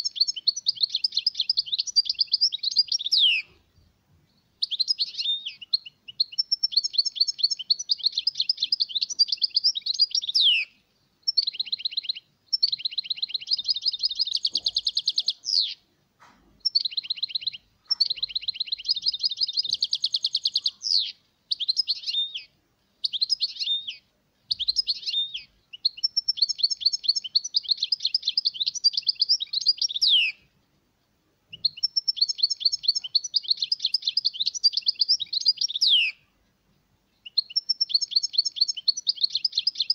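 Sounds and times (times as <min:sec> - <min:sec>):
finch twittering song: 0:00.0 - 0:30.8, 0:31.5 - 0:39.9.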